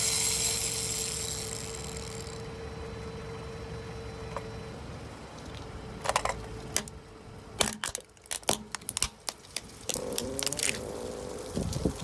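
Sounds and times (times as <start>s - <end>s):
plastic cup cracking under tyre: 7.6s - 11.9s.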